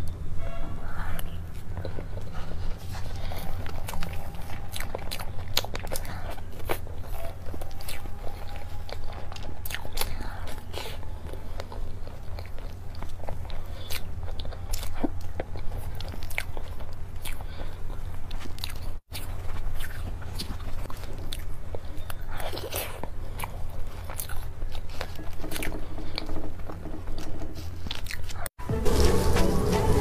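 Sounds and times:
wet chewing and lip smacks: 1.2s - 26.4s
low hum: 28.6s - 30.0s.

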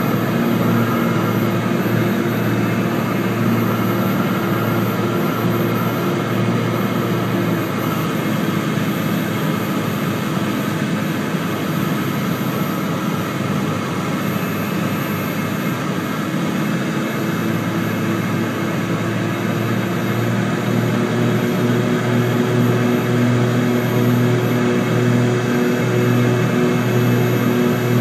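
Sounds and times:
twin propeller engine drone: 0.0s - 28.0s
low pulsing hum: 27.4s - 28.0s.

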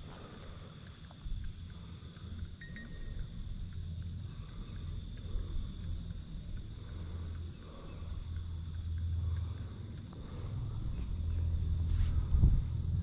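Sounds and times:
faint high-pitched tone: 2.6s - 3.2s
wind rumbling on microphone: 10.6s - 13.0s.

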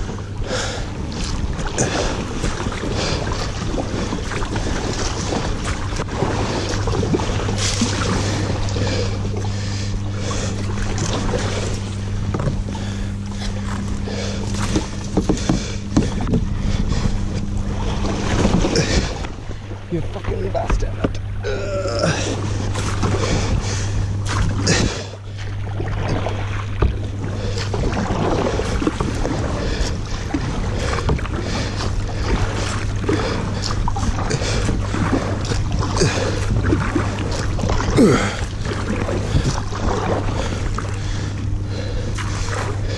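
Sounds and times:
low hum: 0.0s - 42.9s
water rushing around hull: 0.0s - 42.9s
paddle knocking and scraping: 1.2s - 41.2s.

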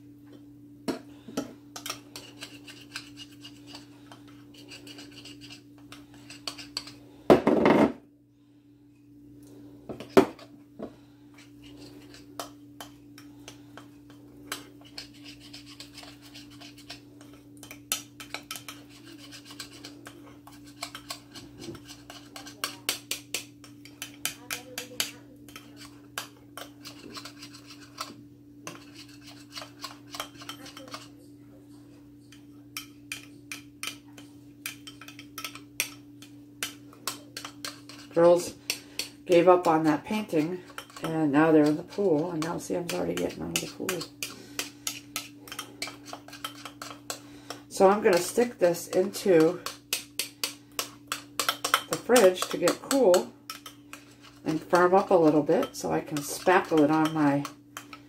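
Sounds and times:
metal spoon scraping glass bowl: 1.8s - 7.0s, 14.5s - 31.1s, 36.6s - 58.0s.

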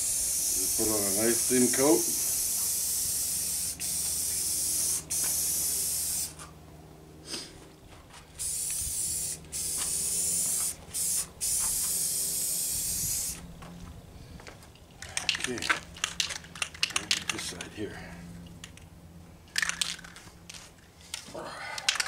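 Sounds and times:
spray paint can hissing: 0.0s - 6.5s, 8.4s - 13.5s.

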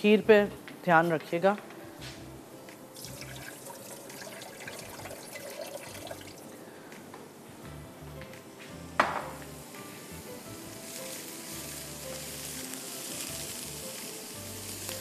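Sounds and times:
soft background music: 0.0s - 15.0s
water running and splashing: 3.0s - 6.5s
sharp knock: 9.0s - 9.4s.

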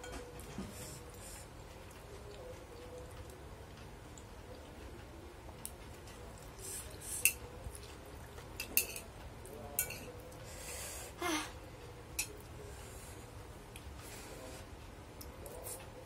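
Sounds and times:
spoon and chopsticks clinking on plate: 8.6s - 9.1s, 9.7s - 10.2s, 12.2s - 12.4s.

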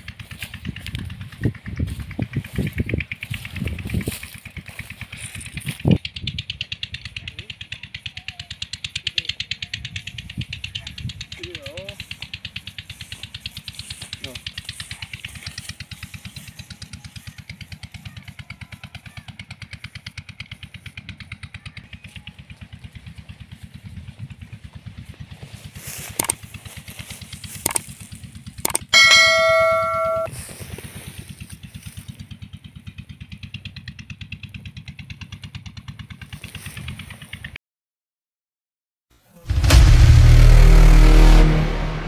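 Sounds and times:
engine chugging: 0.0s - 37.6s
bell-like notification chime: 29.0s - 30.3s.

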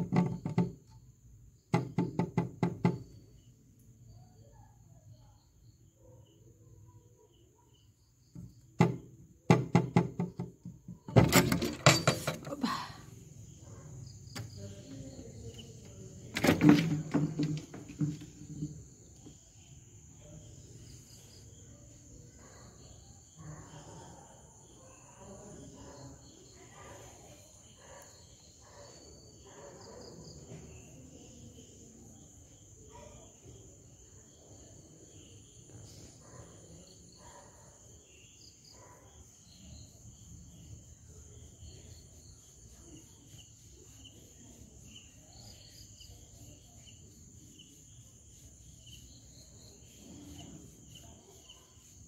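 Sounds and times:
knocks and taps on window: 0.0s - 1.0s, 1.7s - 3.3s, 8.3s - 12.5s, 14.3s - 19.4s
crickets chirring: 0.0s - 52.0s
loud window clatter: 8.3s - 12.7s, 15.8s - 18.9s.

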